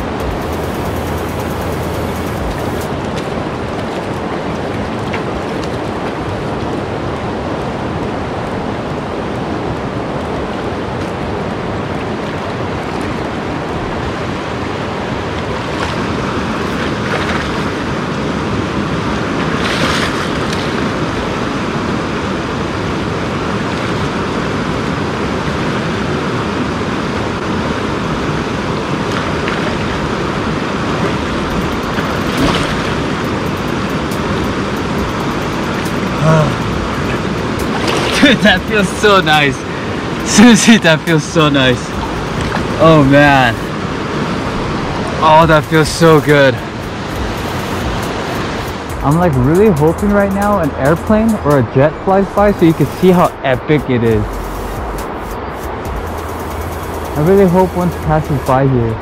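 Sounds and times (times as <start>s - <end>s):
river rushing over boulders: 0.0s - 53.5s
splashes in shallow water: 15.3s - 18.3s, 19.0s - 21.7s, 28.9s - 33.2s, 36.2s - 45.2s.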